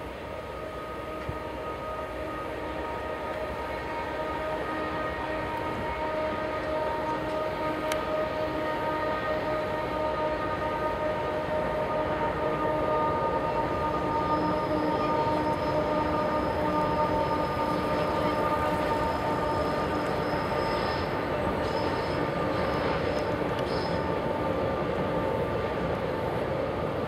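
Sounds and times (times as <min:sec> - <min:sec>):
freight train rolling by: 0:00.0 - 0:27.0
high wheel squeal: 0:12.2 - 0:24.6.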